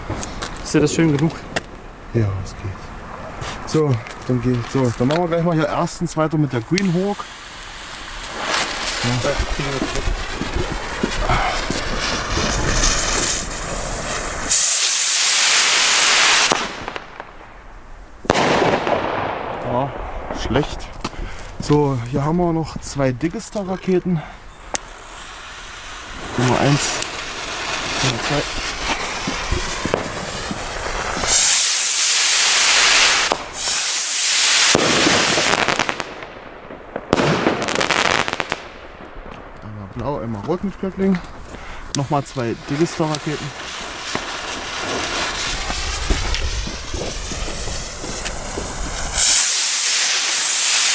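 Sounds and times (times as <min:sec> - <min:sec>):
firework fuse fizzing: 0:03.4 - 0:39.6, 0:40.3 - 0:50.9
rocket launching hiss: 0:06.8 - 0:21.6, 0:24.3 - 0:39.4, 0:41.3 - 0:50.9
firework bang: 0:07.8 - 0:21.4, 0:24.7 - 0:39.6, 0:42.6 - 0:50.9.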